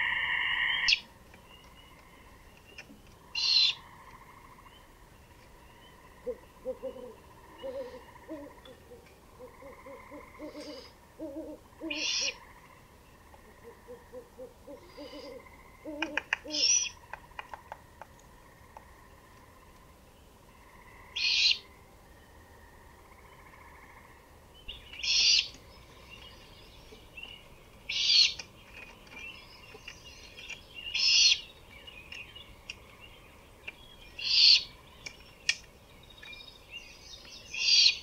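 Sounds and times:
owl hooting: 0:00.0 - 0:01.1, 0:03.3 - 0:03.9, 0:06.1 - 0:12.6, 0:13.3 - 0:17.0, 0:20.6 - 0:21.8, 0:25.0 - 0:25.6, 0:30.9 - 0:31.4, 0:34.2 - 0:34.7, 0:37.6 - 0:38.0
sharp clicks: 0:17.1 - 0:19.9, 0:35.0 - 0:35.7.

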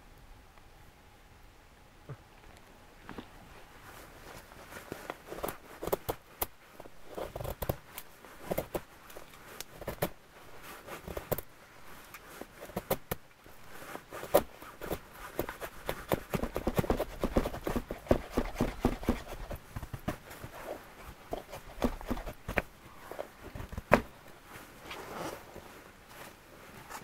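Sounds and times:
knife scraping dry wood: 0:12.0 - 0:24.0.

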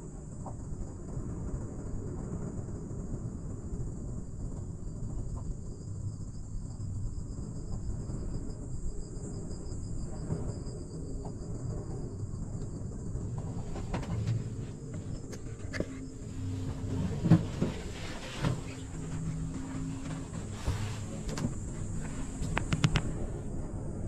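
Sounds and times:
cable car low rumble: 0:00.0 - 0:24.0
faint ticks: 0:12.6 - 0:23.4
high-pitched hiss: 0:17.6 - 0:23.4.

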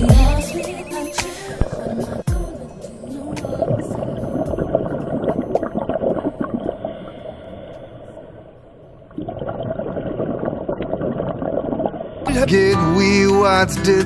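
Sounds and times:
underwater bubbling and crackling: 0:01.4 - 0:12.3
sharp underwater clicks: 0:04.4 - 0:08.0.

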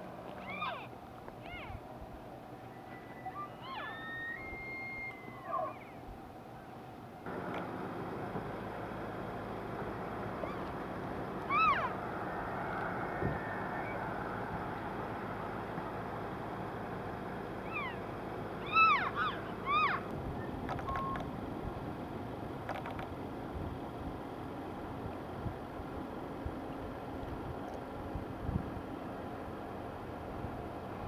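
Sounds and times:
elk mewing chirps: 0:11.4 - 0:12.0, 0:18.6 - 0:20.0.

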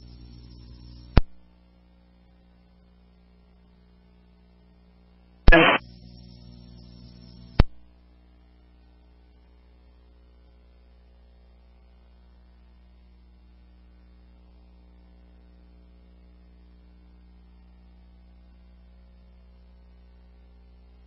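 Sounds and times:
radio squelch click: 0:05.5 - 0:05.8, 0:07.6 - 0:07.8
radio noise burst: 0:05.5 - 0:06.1
radio carrier hum: 0:05.5 - 0:06.4.

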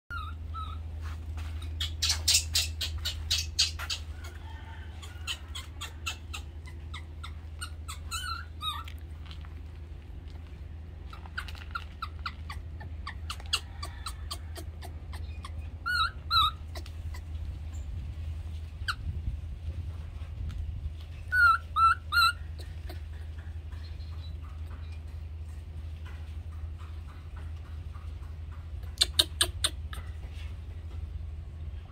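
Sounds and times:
high-pitched chirping calls: 0:00.1 - 0:00.9, 0:01.6 - 0:09.1, 0:11.1 - 0:18.0, 0:21.1 - 0:25.0, 0:28.8 - 0:30.3
steady low hum: 0:00.1 - 0:31.9.

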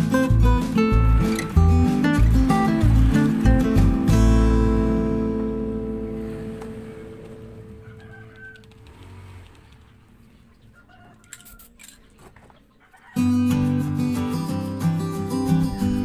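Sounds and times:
acoustic guitar music: 0:00.0 - 0:08.4, 0:13.2 - 0:16.0.

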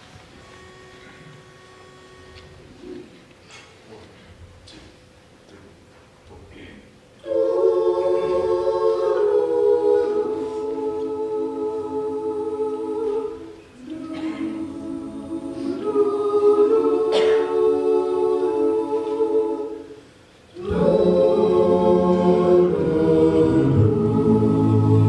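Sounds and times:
male a cappella group singing: 0:07.2 - 0:20.0, 0:20.6 - 0:25.0.

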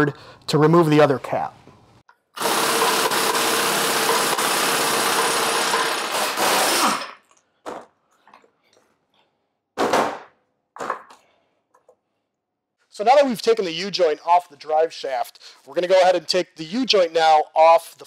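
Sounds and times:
pneumatic impact wrench running: 0:02.4 - 0:07.2.

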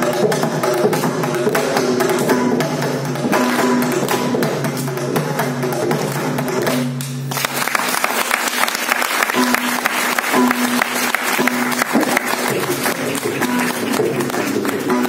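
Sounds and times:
mridangam strokes: 0:00.0 - 0:15.0
people clapping: 0:05.7 - 0:15.0.

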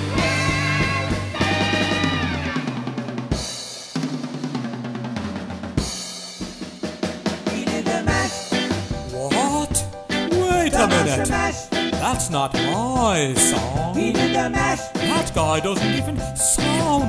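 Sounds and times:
rock drum kit playing: 0:00.0 - 0:17.0.

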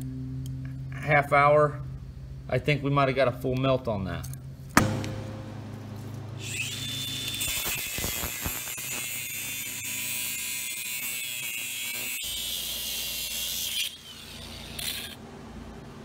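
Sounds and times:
angle grinder grinding steel: 0:06.4 - 0:15.2.

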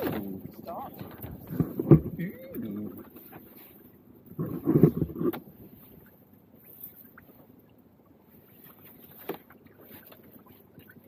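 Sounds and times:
fishing boat background noise: 0:00.0 - 0:11.0.

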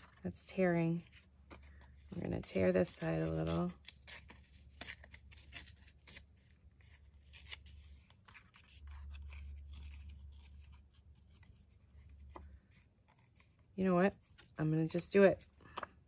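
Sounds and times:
paper tearing by hand: 0:02.5 - 0:12.1.

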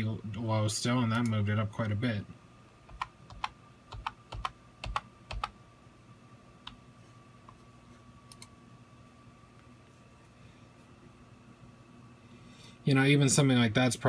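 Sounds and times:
faint electrical hum: 0:00.0 - 0:14.0
computer keys clicking: 0:02.9 - 0:05.5, 0:08.3 - 0:08.5.

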